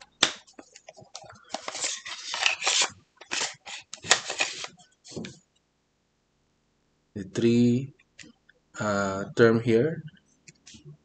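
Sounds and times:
scratching and rustling: 0.5 - 5.4.

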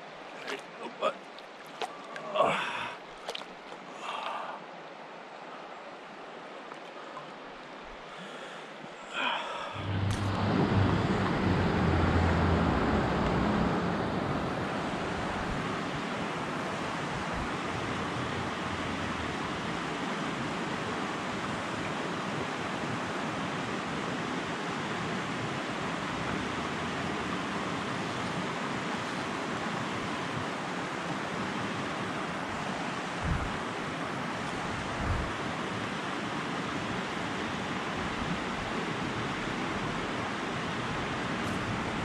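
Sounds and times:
creek water rushing: 0.0 - 42.0
low rumble: 9.8 - 15.6.

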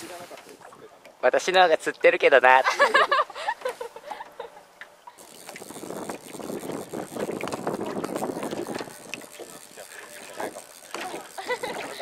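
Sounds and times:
wind: 0.0 - 12.0
woman laughing: 2.6 - 4.7, 11.0 - 12.0
water lapping against boat: 5.1 - 12.0.

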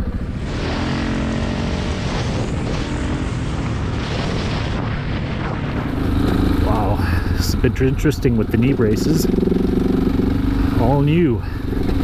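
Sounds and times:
motorcycle engine drone: 0.0 - 12.0
wind rumble on microphone: 1.5 - 8.6.

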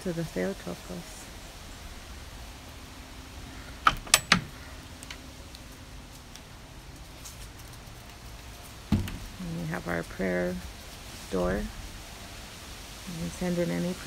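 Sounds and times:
low wind noise: 0.0 - 14.0
metal slide latch clacking: 3.9 - 4.5.

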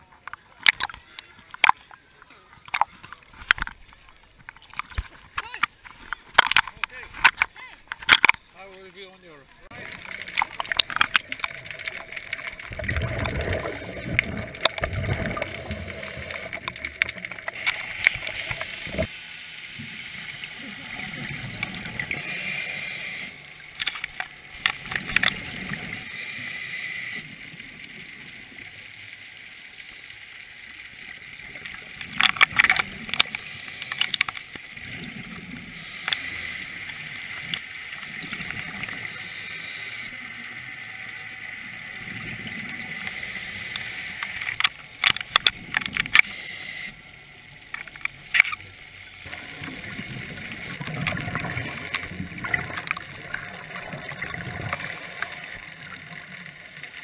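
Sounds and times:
exhaled bubbles: 9.7 - 19.1, 49.2 - 57.0
sharp bubbling crackles: 9.7 - 19.1, 47.8 - 57.0
regulator breathing underwater: 12.9 - 16.7, 22.1 - 23.5, 33.3 - 34.4, 35.6 - 36.9, 39.0 - 40.1, 42.9 - 44.5, 46.2 - 47.0, 50.6 - 52.6.

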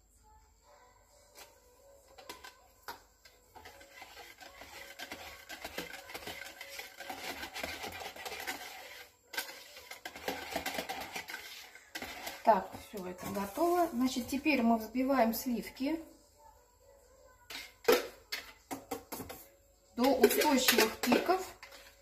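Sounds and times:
whisk scraping and tapping a jug: 2.1 - 14.2, 17.5 - 22.0.

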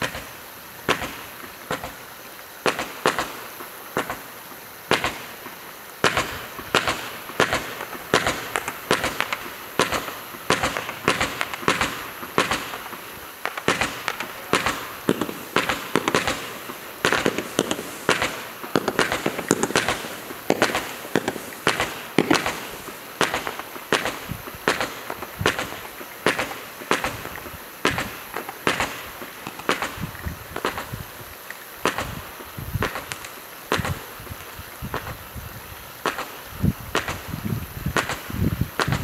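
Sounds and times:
firework cake popping: 0.0 - 39.0.

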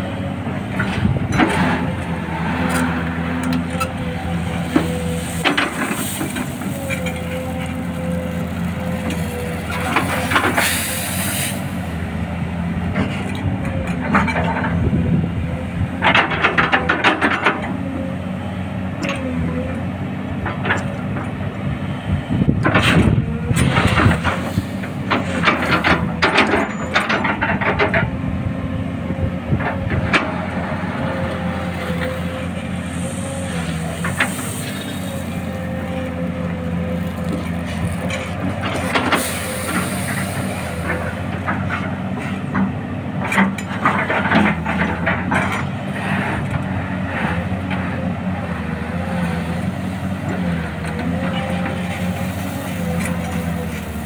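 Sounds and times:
excavator diesel engine whining: 0.0 - 54.0
bucket scraping gravel: 4.3 - 11.8, 32.8 - 36.2, 36.9 - 40.9.

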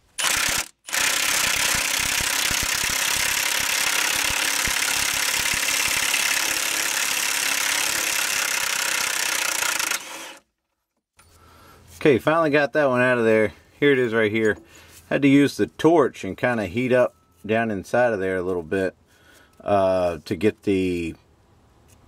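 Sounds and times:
impact wrench hammering: 0.2 - 10.4.

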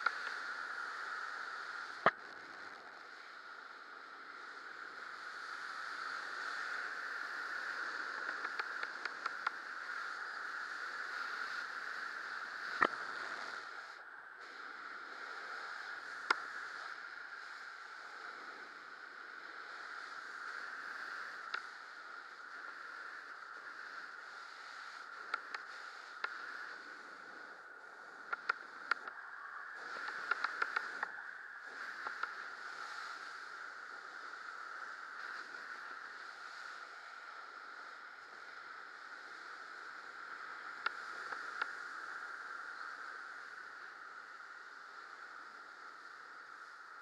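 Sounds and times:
wind rushing over camera: 0.0 - 47.0
sharp clicks: 8.2 - 9.6, 12.7 - 13.0, 28.3 - 29.2, 30.0 - 31.2.

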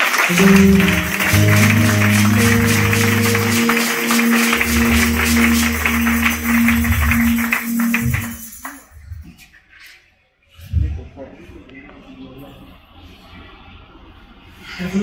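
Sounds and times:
keyboard chords: 0.0 - 8.6
high percussion strokes: 0.0 - 8.9
bass line: 0.3 - 8.4.

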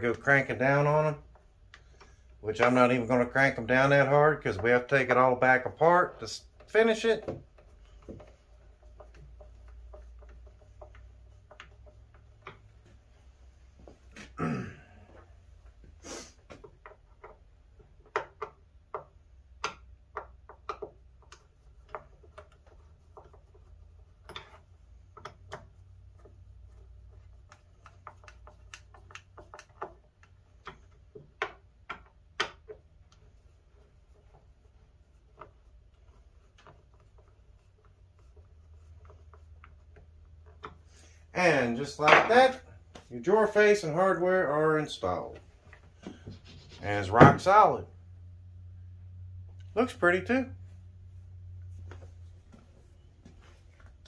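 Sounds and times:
low steady hum: 45.1 - 54.0.

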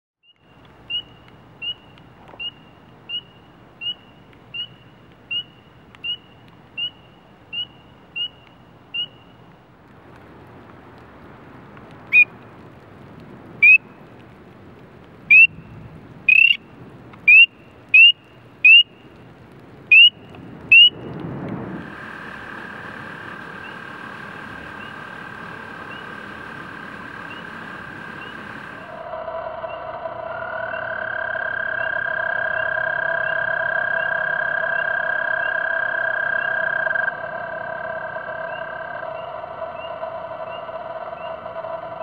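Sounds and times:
frog peeping: 0.2 - 9.4, 15.3 - 15.6, 16.3 - 16.6, 17.3 - 19.0, 19.9 - 21.0, 23.3 - 42.0
toad trilling: 0.3 - 9.3, 16.3 - 16.6, 17.3 - 18.9, 19.9 - 20.9, 23.4 - 42.0.

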